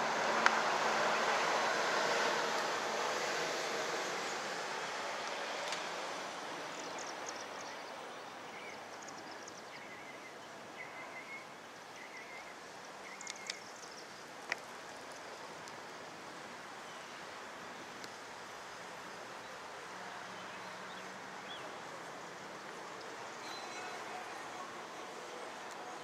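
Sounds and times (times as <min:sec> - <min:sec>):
steady rushing noise: 0:00.0 - 0:08.8
small birds chirping: 0:06.7 - 0:14.3.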